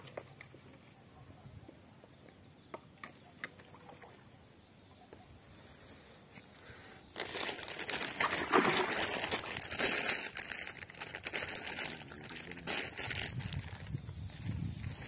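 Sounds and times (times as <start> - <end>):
fish thrashing and splashing water: 7.2 - 11.7.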